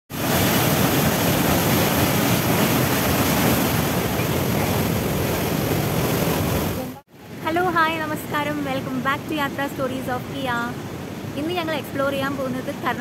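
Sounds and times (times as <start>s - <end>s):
water gushing down spillway: 0.1s - 7.0s.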